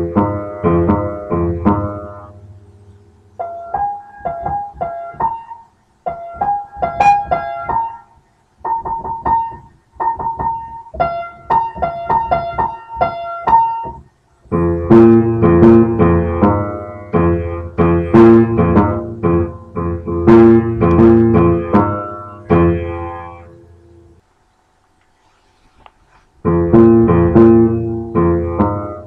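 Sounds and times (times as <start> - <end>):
piano music: 0.0 - 24.2, 26.4 - 29.0.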